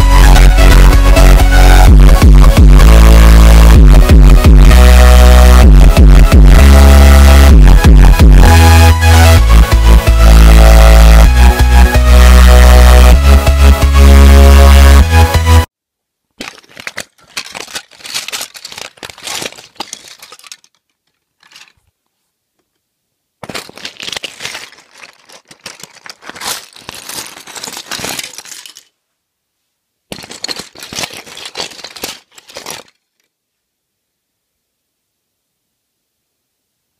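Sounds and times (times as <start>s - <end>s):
plastic pieces clattering: 16.3s - 22.8s, 23.4s - 29.0s, 30.1s - 33.4s.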